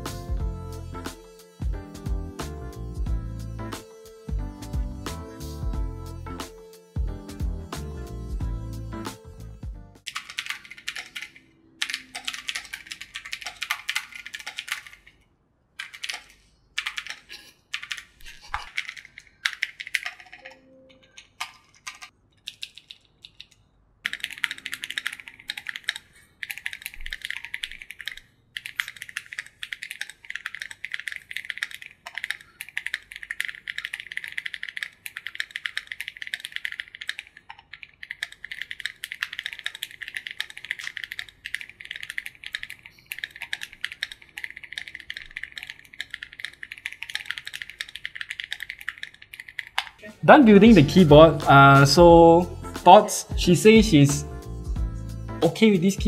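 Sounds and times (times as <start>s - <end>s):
typing on mechanical keyboard: 10.1s - 15.2s, 15.8s - 50.0s.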